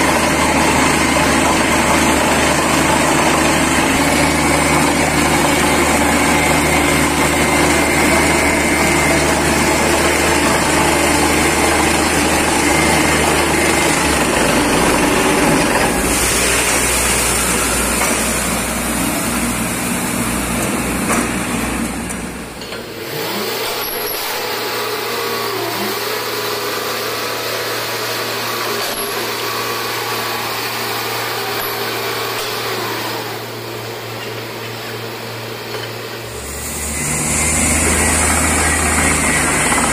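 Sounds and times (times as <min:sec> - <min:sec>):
air blowing water from bore: 0:00.0 - 0:20.4, 0:36.2 - 0:39.9
drilling rig engine running: 0:00.0 - 0:39.9.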